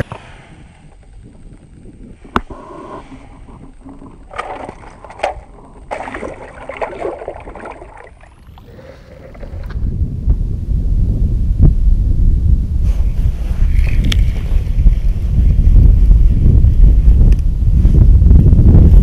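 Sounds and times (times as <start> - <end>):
wind rumble on microphone: 0.0 - 19.0
water splashing: 3.4 - 9.7.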